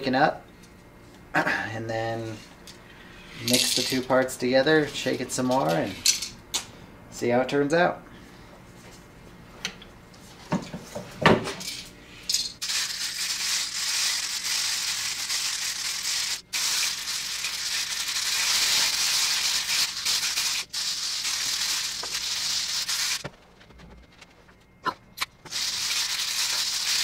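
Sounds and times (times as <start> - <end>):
aerosol can rattling when shaken: 12.6 - 23.3, 25.5 - 27.0.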